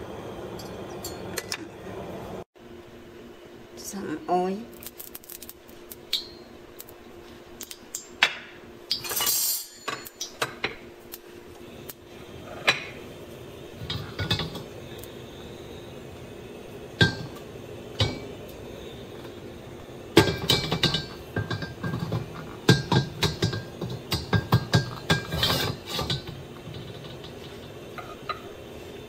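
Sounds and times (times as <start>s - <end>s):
faint steady hum: 0.0s - 29.0s
kitchenware clinking: 0.5s - 1.7s, 8.0s - 10.9s, 12.4s - 13.0s, 13.8s - 14.7s, 20.2s - 28.6s.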